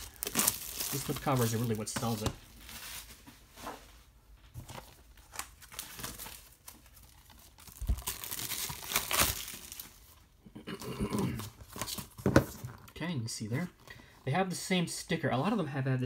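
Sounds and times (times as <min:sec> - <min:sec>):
plastic shrink-wrap tearing and crinkling: 0:00.0 - 0:03.1, 0:05.2 - 0:10.1.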